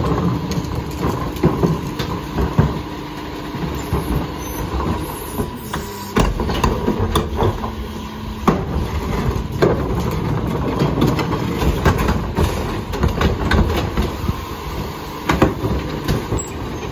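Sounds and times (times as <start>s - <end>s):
clanks of carts and metal lifter: 0.0s - 14.4s, 15.2s - 16.9s
garbage truck engine running: 0.0s - 16.9s
hydraulic cart tipper: 0.0s - 16.9s.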